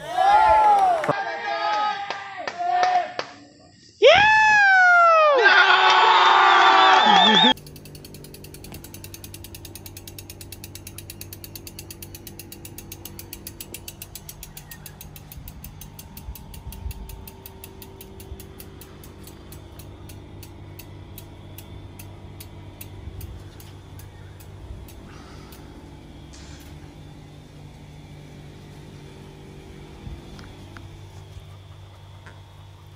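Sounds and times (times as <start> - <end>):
bicycle freehub ticking: 7.5 - 32.9.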